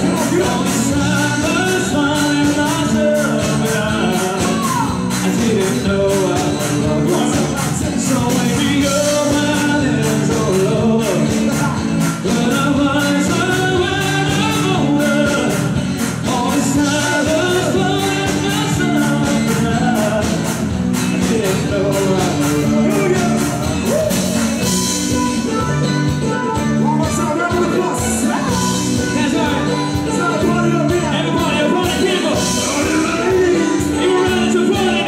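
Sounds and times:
man singing into microphone: 0:00.0 - 0:35.0
steady driving beat: 0:00.0 - 0:35.0.

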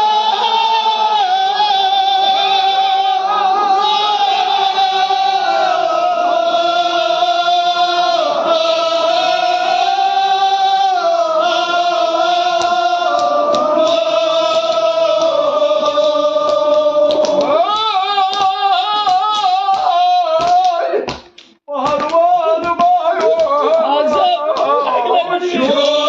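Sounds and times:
men chanting held notes: 0:00.0 - 0:21.1, 0:21.7 - 0:26.0
rhythmic hand strikes: 0:11.1 - 0:26.0.

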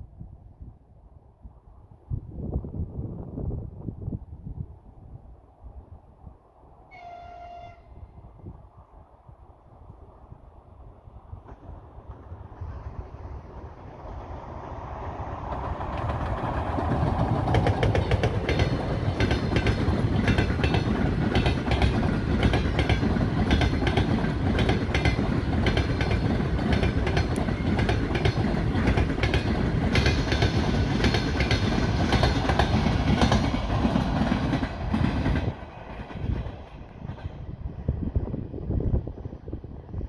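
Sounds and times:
train rumbling past: 0:00.0 - 0:40.0
wheels clicking over rail joints: 0:15.3 - 0:37.3.

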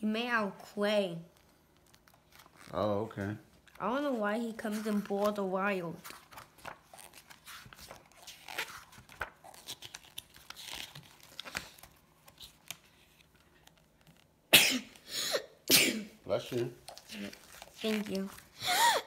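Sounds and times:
pages turning: 0:01.4 - 0:03.0, 0:03.6 - 0:14.3, 0:16.5 - 0:18.6.

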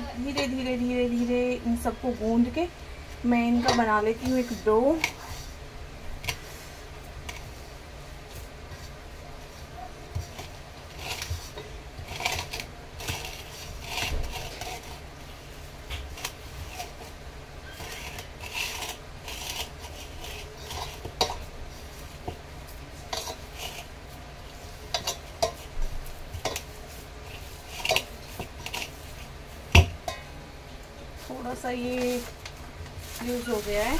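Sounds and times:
hands kneading mixture in bowl: 0:00.0 - 0:30.3, 0:31.1 - 0:33.9
clinks and scrapes on metal bowl: 0:03.6 - 0:05.4, 0:17.6 - 0:21.5, 0:23.1 - 0:23.9, 0:24.9 - 0:25.7, 0:26.4 - 0:26.7, 0:27.3 - 0:29.3.

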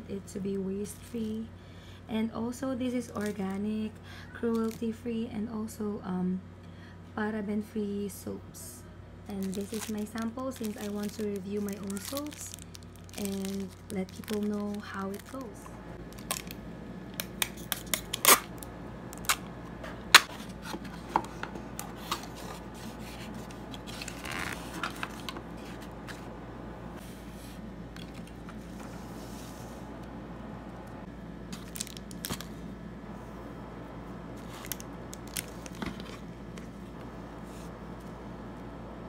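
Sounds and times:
paper rustle: 0:09.4 - 0:15.5, 0:22.0 - 0:26.3.

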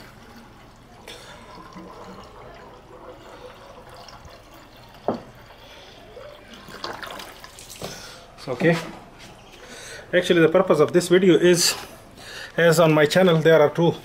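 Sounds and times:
water trickling from a bottle: 0:00.0 - 0:08.0.

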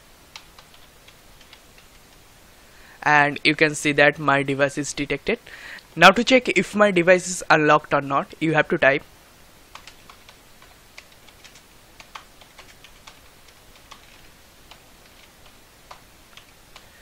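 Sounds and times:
keyboard typing clicks: 0:00.3 - 0:02.1, 0:09.7 - 0:16.9.

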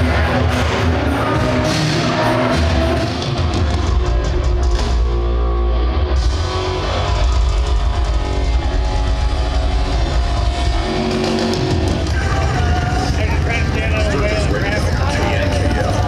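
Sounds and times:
loud rock music: 0:00.0 - 0:16.0.

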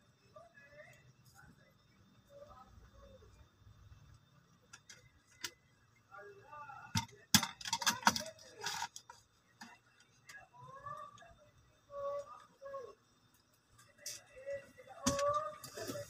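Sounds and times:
sharp clicks and clinks: 0:06.9 - 0:10.4
small hard objects clicking: 0:06.9 - 0:11.4.

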